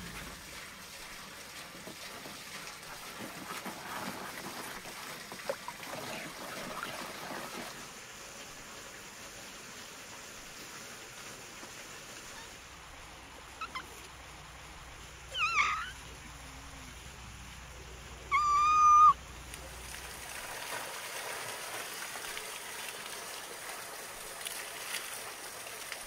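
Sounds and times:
fountain water running into barrel: 0.0 - 26.0
cat meowing: 15.3 - 16.0, 18.3 - 19.2.

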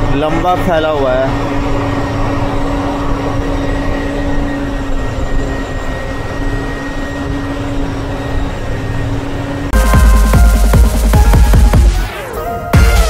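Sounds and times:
bus engine and road noise drone: 0.0 - 9.8.

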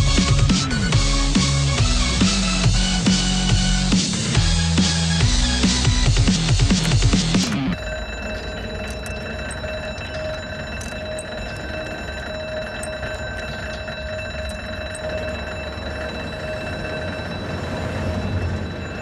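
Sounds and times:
electronic ringing tone: 5.2 - 19.0.

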